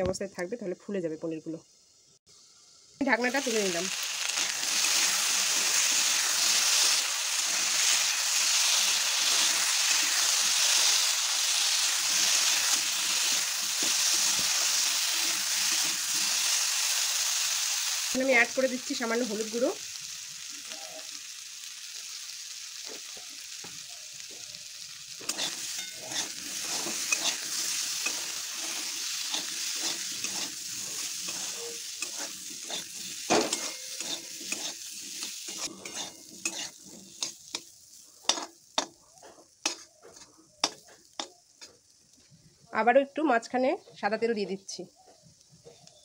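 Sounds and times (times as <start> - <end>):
potatoes sizzling in oil: 0.0 - 46.0
metal spatula scraping pan: 25.2 - 37.6, 38.2 - 38.9.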